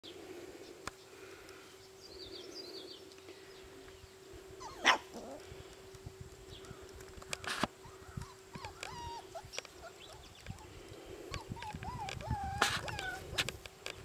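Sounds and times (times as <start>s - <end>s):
steady low hum: 0.0s - 14.0s
puppies yipping: 4.6s - 5.4s, 7.5s - 13.5s.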